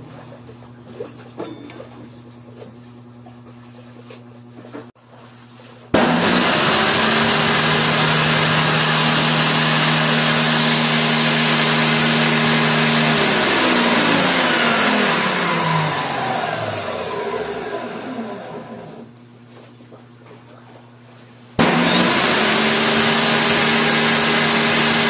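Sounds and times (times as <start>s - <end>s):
table saw whine: 6.0s - 19.1s, 21.6s - 25.0s.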